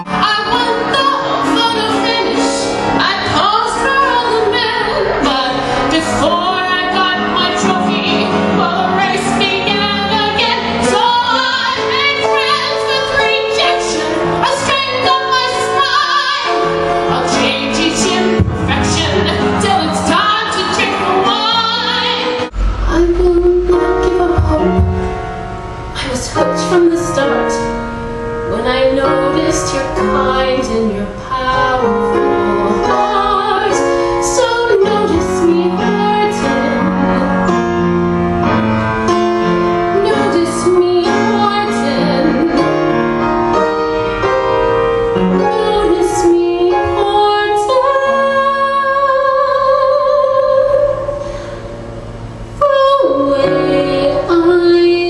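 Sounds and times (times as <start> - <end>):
woman singing: 0.0 - 25.2, 26.0 - 27.8, 28.5 - 37.7, 39.9 - 42.8, 45.3 - 51.2, 52.6 - 55.0
instrumental accompaniment: 0.0 - 55.0
deep bass: 22.4 - 26.1.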